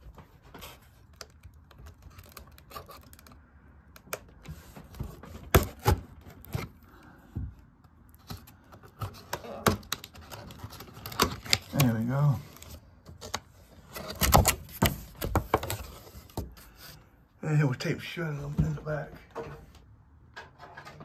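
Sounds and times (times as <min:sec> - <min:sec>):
cardboard packaging scraping and rustling: 0:00.0 - 0:03.4, 0:04.4 - 0:07.0, 0:08.2 - 0:17.0.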